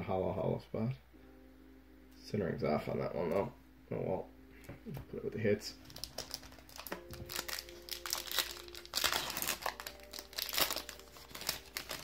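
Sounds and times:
foil wrapper crinkling: 5.8s - 12.0s.

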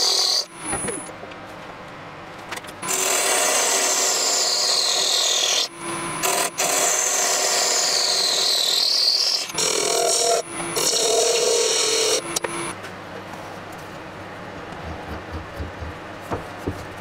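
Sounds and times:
lathe tool scraping hiss: 2.8s - 12.7s.

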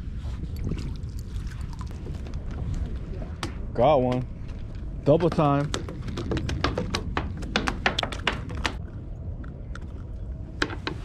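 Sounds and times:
sharp taps on wooden boards: 5.1s - 8.8s.

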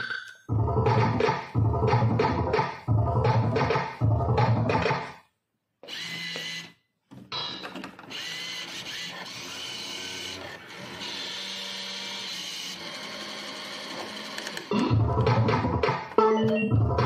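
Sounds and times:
slot machine music: 0.0s - 5.0s, 14.7s - 17.0s
electronic jingle: 16.2s - 17.0s.

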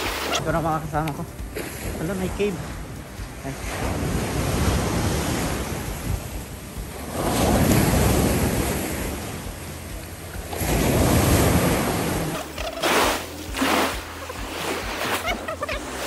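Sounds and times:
surf washing onto beach: 0.0s - 16.0s
wind buffeting microphone: 1.3s - 12.4s.

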